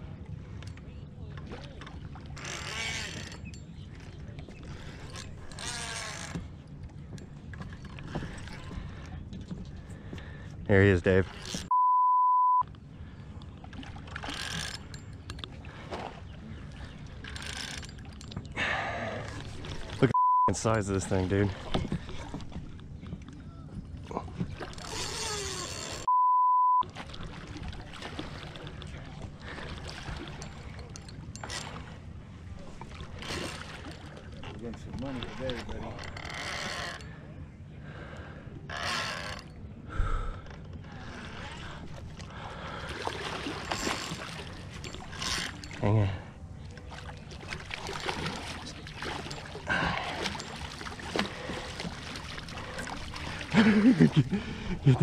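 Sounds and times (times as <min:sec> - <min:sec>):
water splashing and sloshing: 0:00.0 - 0:11.8, 0:12.6 - 0:26.1, 0:26.7 - 0:55.0
censor bleep: 0:11.7 - 0:12.7, 0:20.2 - 0:20.6, 0:26.1 - 0:26.9.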